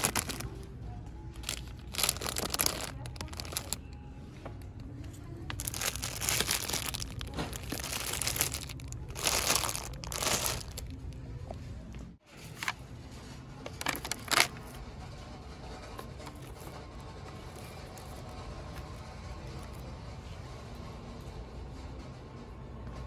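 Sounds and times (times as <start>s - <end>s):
plastic bags crinkling: 0.0s - 0.7s, 1.4s - 3.8s, 5.5s - 11.0s, 13.7s - 14.6s
low background hum: 0.0s - 23.0s.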